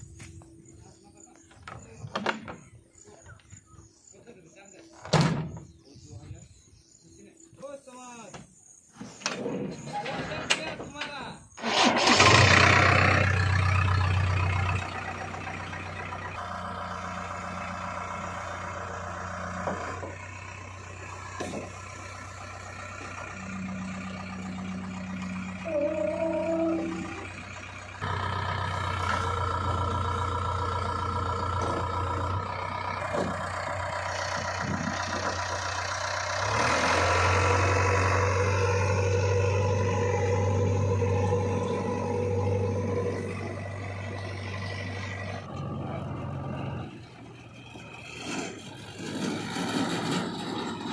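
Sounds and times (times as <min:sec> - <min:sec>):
diesel engine running: 0:11.5 - 0:50.9
short wavering tone: 0:25.4 - 0:27.3.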